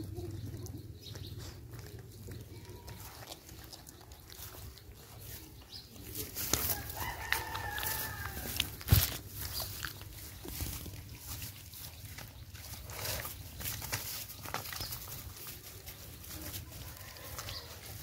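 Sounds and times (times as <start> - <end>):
puppies eating from plastic bowl: 0.0 - 18.0
rooster crowing: 6.7 - 8.6.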